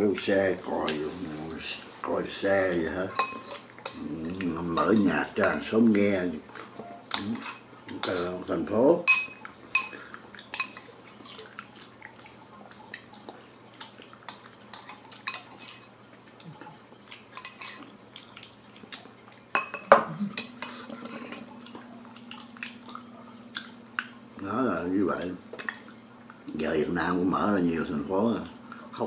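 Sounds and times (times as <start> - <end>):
ceramic bowls and spoon clinking: 3.1 - 5.8, 6.8 - 11.4, 14.3 - 15.9, 17.4 - 17.8, 19.5 - 21.7.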